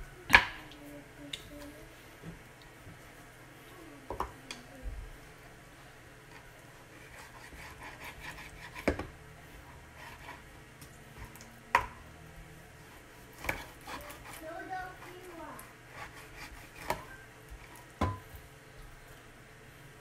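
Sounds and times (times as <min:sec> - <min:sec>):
knife slicing meat: 0:07.0 - 0:09.0, 0:09.9 - 0:10.4, 0:13.2 - 0:15.2, 0:15.9 - 0:17.2.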